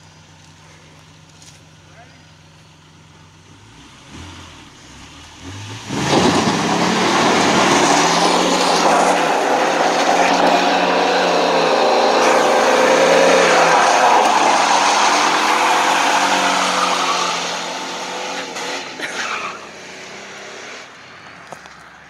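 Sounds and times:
car engine revving: 0.4 - 22.0
tyres spinning and squealing: 5.8 - 20.4.

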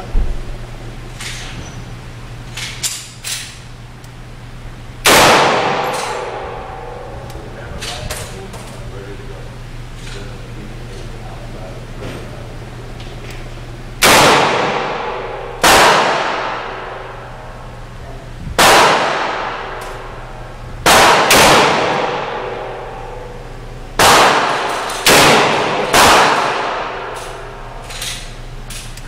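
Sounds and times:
revolver gunshots echoing indoors: 5.0 - 8.7, 13.9 - 18.0, 18.6 - 29.0.

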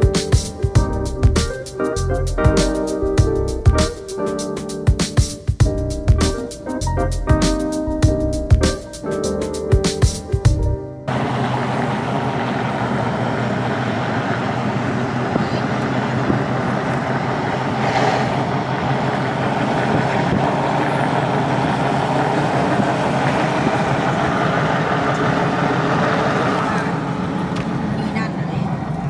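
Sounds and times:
motor vehicle running: 11.1 - 29.0.

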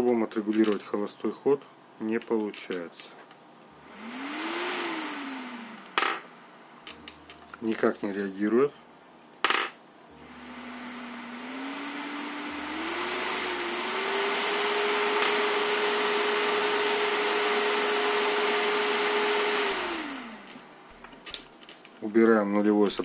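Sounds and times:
computer cooling fan hum: 3.7 - 7.8, 10.1 - 21.2.

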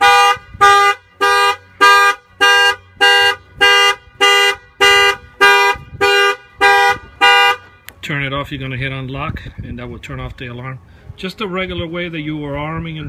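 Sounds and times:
car alarm horn honking: 0.0 - 7.9.

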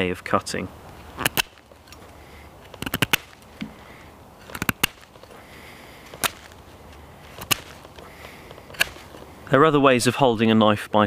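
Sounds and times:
knife shaving wooden stick: 1.2 - 9.5.

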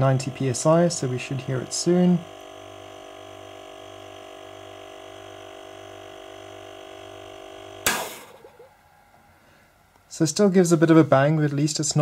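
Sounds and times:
compressor pump humming: 0.0 - 9.2
valve venting burst of air: 7.8 - 8.6.

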